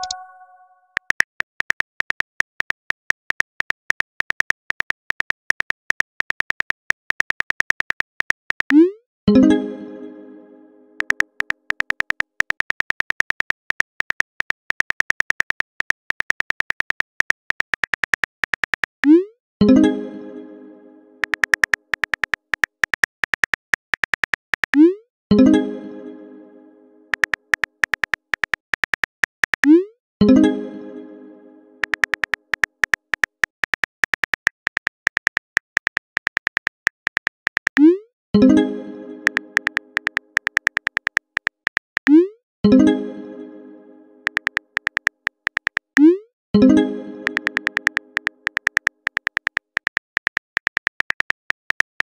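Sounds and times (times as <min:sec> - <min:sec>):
ringing message tone: 0:00.0 - 0:00.9
phone keyboard clicks: 0:01.0 - 0:08.8, 0:11.0 - 0:19.1, 0:21.2 - 0:24.8, 0:27.1 - 0:29.7, 0:31.8 - 0:37.9, 0:39.2 - 0:42.1, 0:44.2 - 0:46.1, 0:47.2 - 0:52.0.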